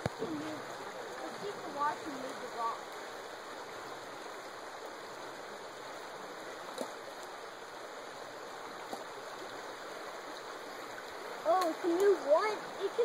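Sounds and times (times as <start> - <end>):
creek water running over rocks: 0.0 - 13.0.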